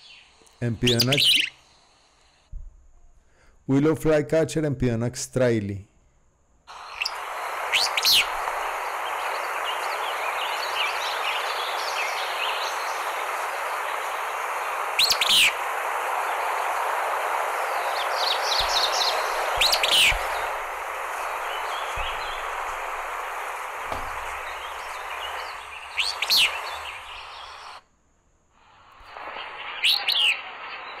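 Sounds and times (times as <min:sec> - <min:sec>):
bird calling: 0:00.0 - 0:01.6, 0:06.7 - 0:27.8, 0:29.2 - 0:31.0
background hiss: 0:00.0 - 0:31.0.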